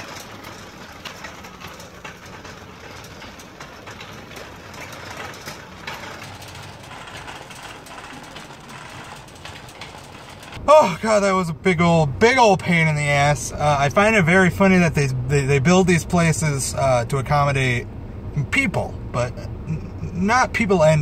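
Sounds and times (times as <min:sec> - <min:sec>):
wire basket rattling: 0:00.0 - 0:10.6
shopping cart wheels rumbling: 0:00.0 - 0:17.8.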